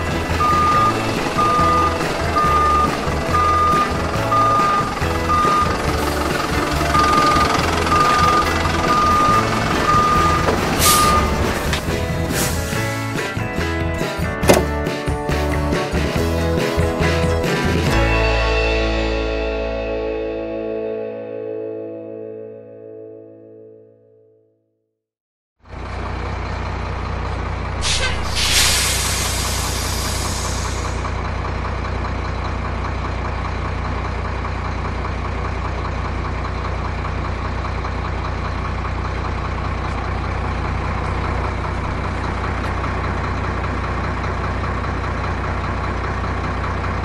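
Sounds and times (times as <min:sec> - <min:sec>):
truck engine idling: 0:00.0 - 0:18.0, 0:25.6 - 0:47.0
air brake hiss: 0:10.8 - 0:11.4, 0:12.3 - 0:13.2, 0:27.8 - 0:31.1.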